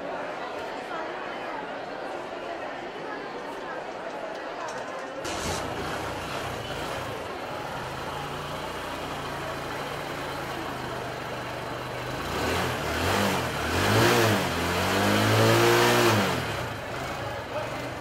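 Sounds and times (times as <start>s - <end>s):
motorcycle engine idling and revving: 5.3s - 18.0s.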